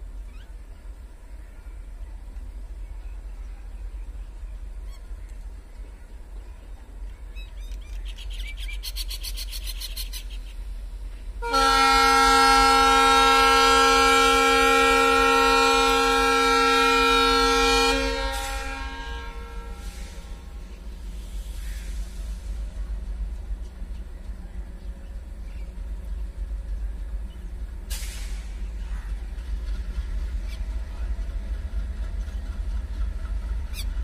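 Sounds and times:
locomotive air horn: 11.4s - 20.6s.

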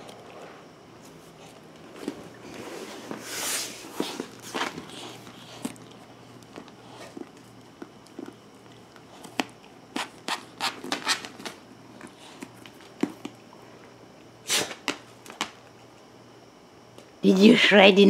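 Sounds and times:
dog tearing cardboard: 9.4s - 11.6s.

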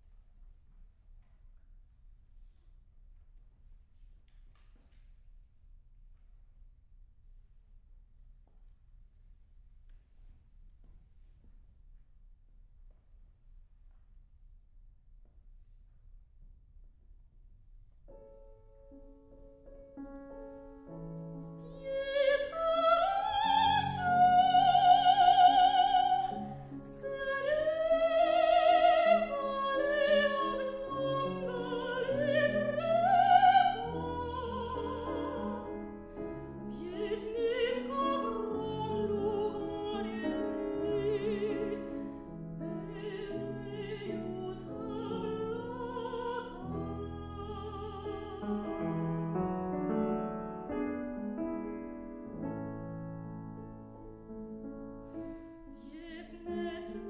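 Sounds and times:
grand piano accompaniment: 18.0s - 57.0s
soprano singing: 21.1s - 51.0s, 55.6s - 57.0s.

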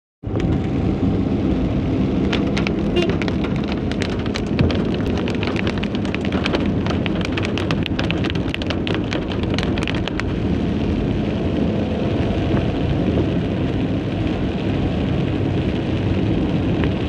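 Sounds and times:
car driving on wet road: 0.2s - 17.0s
rain pelting car windscreen: 0.3s - 17.0s.

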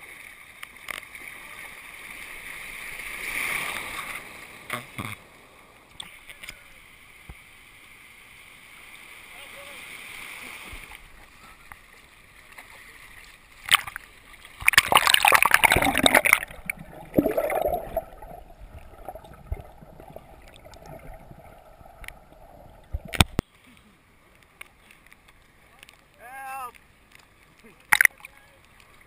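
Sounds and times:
water rushing splash: 13.2s - 23.4s
muffled underwater gurgling: 14.7s - 23.4s.

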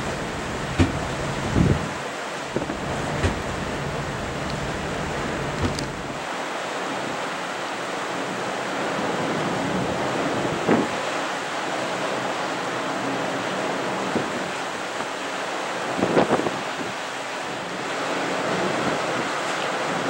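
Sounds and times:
water hissing: 0.0s - 1.9s, 2.5s - 6.2s
brief knock: 0.8s - 1.0s.

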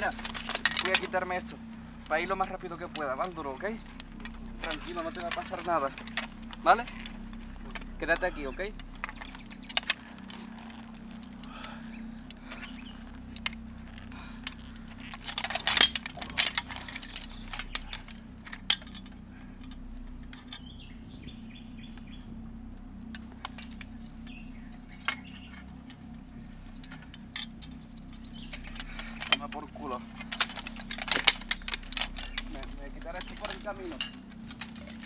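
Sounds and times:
small metal objects clinking: 0.0s - 11.4s, 12.6s - 20.6s, 26.7s - 35.0s
low hum: 0.0s - 35.0s.

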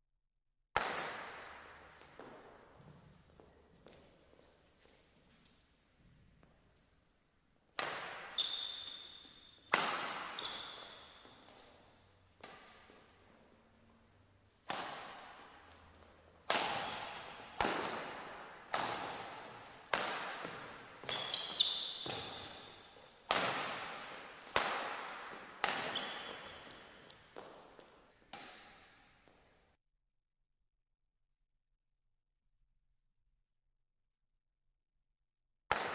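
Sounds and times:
rackets hitting shuttlecock: 0.8s - 3.1s, 7.7s - 29.2s
court shoes squeaking: 0.8s - 5.6s, 7.8s - 29.4s.

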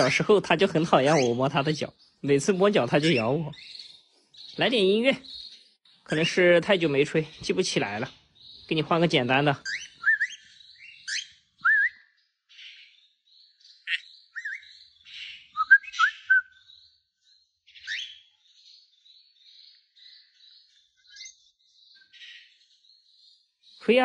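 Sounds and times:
cockatiel chattering: 1.0s - 1.4s
cockatiel whistling: 9.6s - 12.1s, 13.9s - 14.6s, 15.5s - 16.7s.

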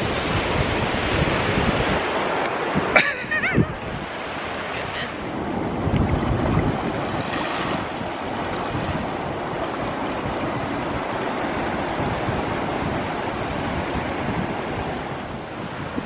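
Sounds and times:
surf washing on beach: 0.0s - 16.0s
wind buffeting microphone: 0.0s - 16.0s.

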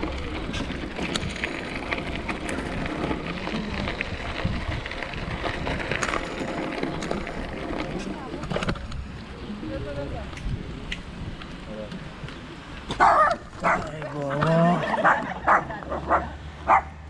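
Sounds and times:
wind rumble on microphone: 0.0s - 12.4s
bicycle tyre and road noise: 0.0s - 17.0s.

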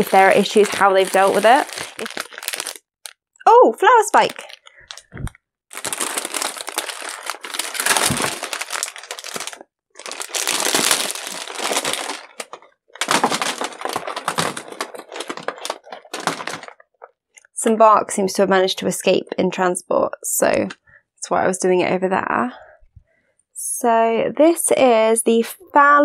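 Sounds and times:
plastic and paper crinkling: 0.0s - 3.2s, 3.8s - 17.1s.

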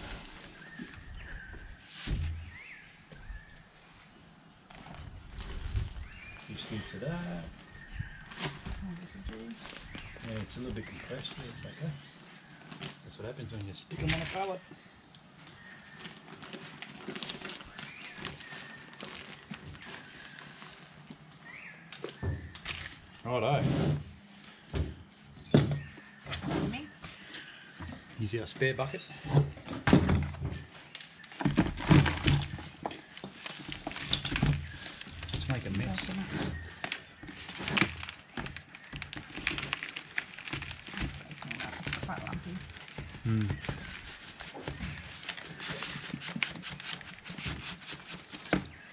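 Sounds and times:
plastic bag rustling and crinkling: 0.0s - 4.0s, 4.7s - 14.7s, 15.4s - 23.3s, 27.2s - 48.9s
potting mix poured and crackling: 30.9s - 43.2s.

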